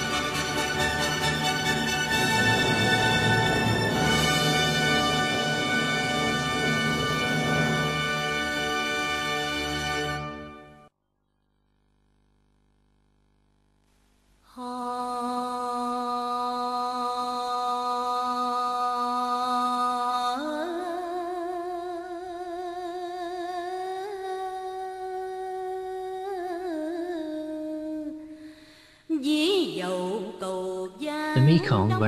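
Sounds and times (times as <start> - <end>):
person singing slow melody: 31.4 - 32.0.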